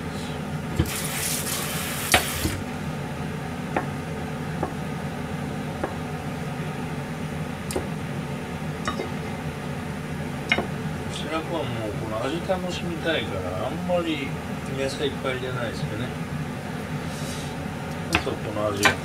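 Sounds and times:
steady low hum: 0.0s - 19.0s
knife tapping on plastic board: 4.6s - 4.8s, 5.8s - 6.0s, 10.5s - 10.8s, 18.1s - 19.0s.

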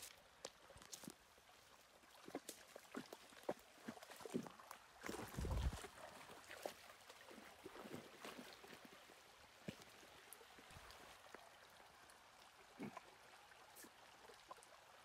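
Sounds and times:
footsteps on stones and brush: 0.0s - 1.2s
shallow rocky river burbling: 0.0s - 15.0s.

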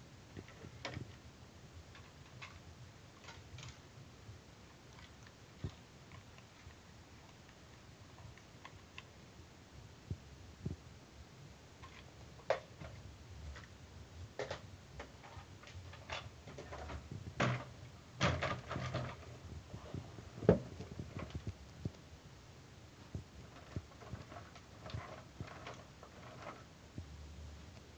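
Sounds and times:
plastic toys clicking and knocking: 0.4s - 1.2s, 1.9s - 3.8s, 11.8s - 13.7s, 14.4s - 19.5s, 23.4s - 26.7s.

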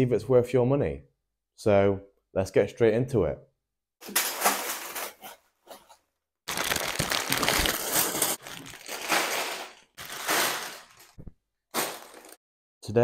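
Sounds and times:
plastic bricks rattling: 6.5s - 11.2s
plastic bags crinkling: 6.5s - 12.4s.

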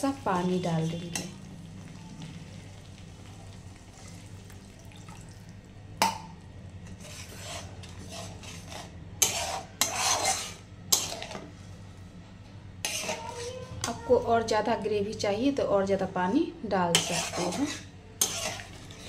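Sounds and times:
metal spatula scraping pan: 6.8s - 11.4s, 12.8s - 13.7s, 16.9s - 19.0s.

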